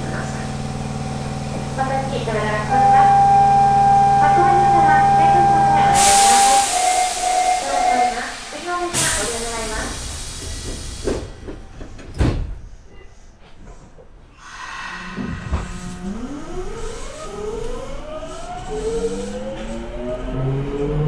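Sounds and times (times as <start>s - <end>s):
train motors whining rising in pitch: 0.0s - 9.5s, 14.8s - 21.0s.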